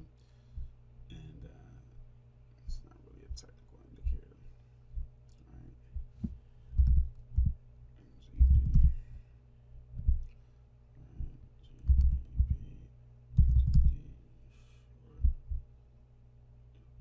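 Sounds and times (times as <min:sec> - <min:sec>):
faint steady hum: 0:00.0 - 0:17.0
computer keyboard typing: 0:06.8 - 0:07.5, 0:08.4 - 0:08.9, 0:11.8 - 0:12.6, 0:13.4 - 0:14.0
mouse clicks: 0:11.8 - 0:12.2, 0:13.4 - 0:14.0.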